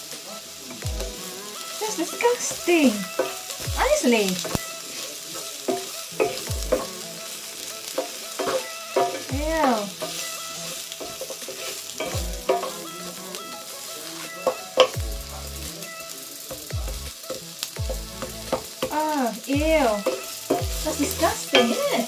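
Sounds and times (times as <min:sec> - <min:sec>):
onions sizzling in oil: 0:00.0 - 0:22.0
wooden spatula scraping a skillet: 0:01.1 - 0:15.0, 0:19.8 - 0:22.0.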